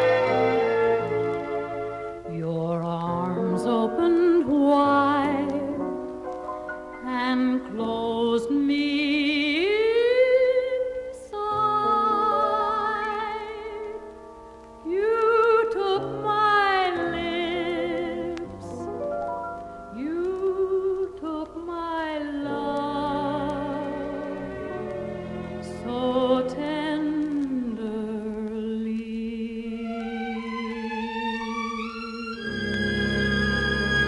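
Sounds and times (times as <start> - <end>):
small orchestra playing: 0.0 - 2.3, 29.8 - 34.0
woman singing a slow ballad: 2.3 - 6.0, 7.0 - 14.1, 14.8 - 18.9, 19.9 - 24.5, 25.6 - 31.6.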